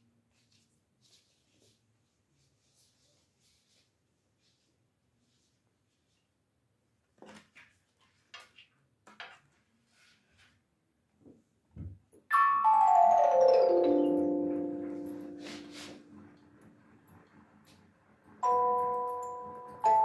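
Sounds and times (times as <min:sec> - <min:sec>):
music box notes: 0:12.3 - 0:16.3, 0:18.4 - 0:20.0.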